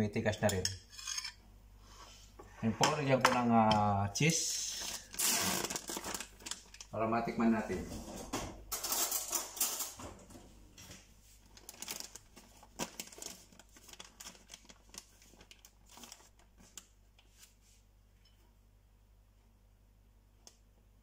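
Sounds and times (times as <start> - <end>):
plastic bag crinkling: 4.5 - 7.0, 11.4 - 17.4.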